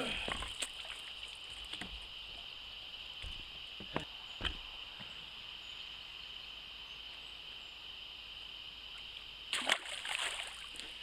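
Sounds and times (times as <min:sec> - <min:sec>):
fish splashing in water: 0:09.5 - 0:11.0.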